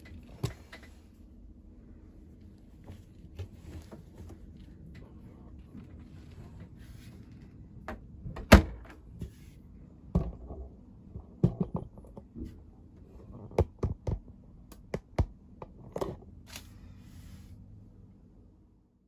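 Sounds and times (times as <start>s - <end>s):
dryer door shutting: 8.3s - 9.0s.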